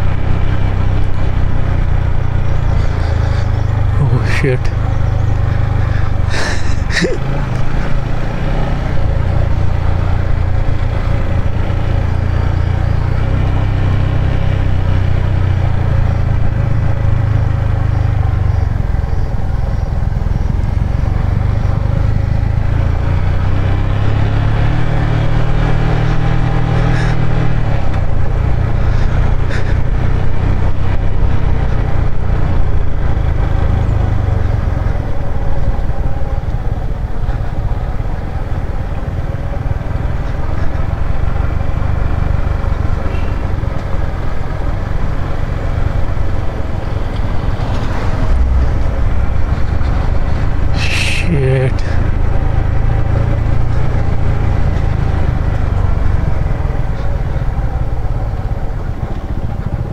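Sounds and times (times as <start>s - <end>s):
motorcycle engine at low revs: 0.0s - 50.9s, 51.8s - 59.9s.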